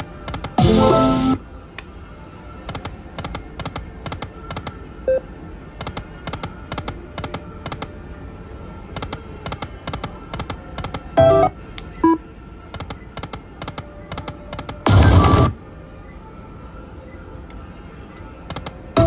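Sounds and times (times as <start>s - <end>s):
loud electronic chime: 0.6s - 1.4s
slot machine reel-stop clicking: 0.6s - 1.4s.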